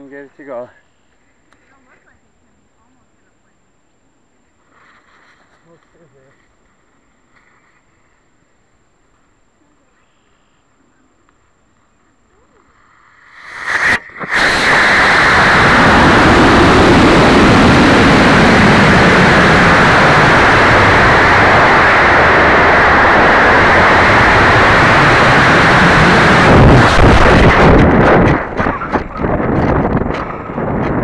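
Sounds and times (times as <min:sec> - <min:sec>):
rush of rocket exhaust and airflow: 0:12.6 - 0:31.0
rocket motor igniting: 0:12.8 - 0:30.8.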